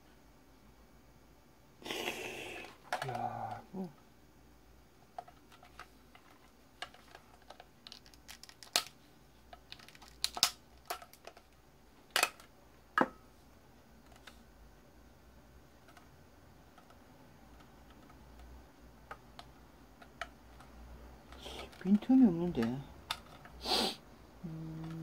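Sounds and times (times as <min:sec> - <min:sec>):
plastic parts clicking and knocking: 0:05.1 - 0:13.2, 0:16.7 - 0:23.6.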